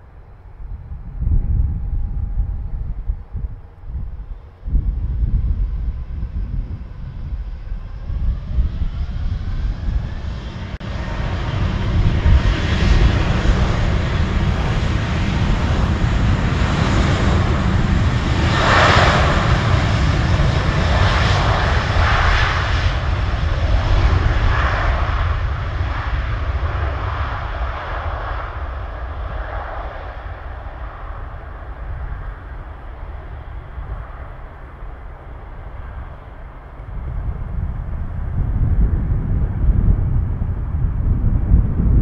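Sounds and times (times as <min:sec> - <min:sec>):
jet engines roaring at takeoff: 0:00.0 - 0:42.0.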